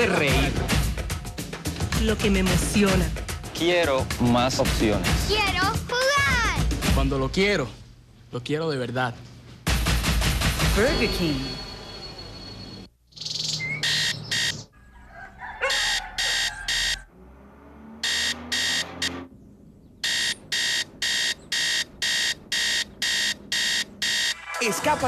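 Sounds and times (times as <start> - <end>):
digital alarm clock beeping: 13.6 - 14.7, 15.7 - 17.1, 18.0 - 19.3, 20.0 - 24.5.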